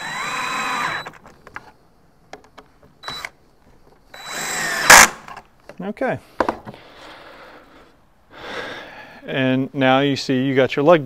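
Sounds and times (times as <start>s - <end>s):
cordless drill driving screws: 0.0s - 1.2s, 3.0s - 3.3s, 4.1s - 5.3s
small clicks and knocks: 1.1s - 3.3s.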